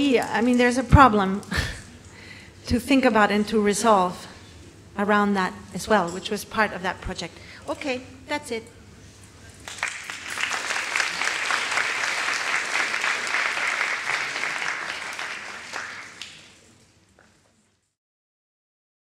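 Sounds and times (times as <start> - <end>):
audience applauding: 9.6 - 16.7.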